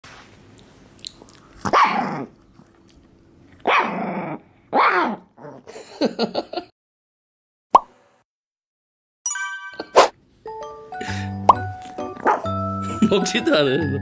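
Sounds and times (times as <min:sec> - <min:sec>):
small dog barking growly: 0:01.6 - 0:02.4, 0:03.6 - 0:05.7.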